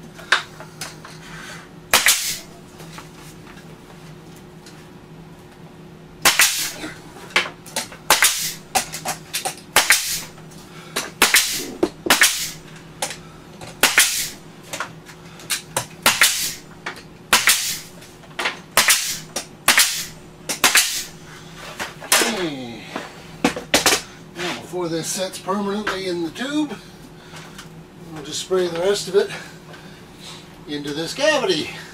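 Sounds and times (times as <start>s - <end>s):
nail gun firing into wood: 1.9s - 2.4s, 6.2s - 6.7s, 8.1s - 8.6s, 9.8s - 10.2s, 13.8s - 14.3s, 16.0s - 16.6s, 17.3s - 17.8s, 18.8s - 21.1s.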